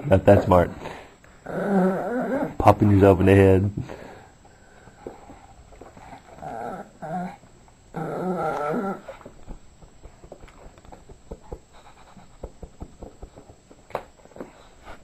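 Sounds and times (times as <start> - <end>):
dog growl-whining: 1.4 - 2.6, 6.1 - 9.3.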